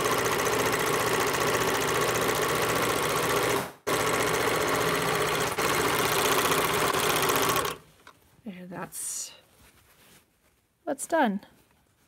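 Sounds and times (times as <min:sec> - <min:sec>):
serger sewing machine stitching: 0:00.0 - 0:07.9.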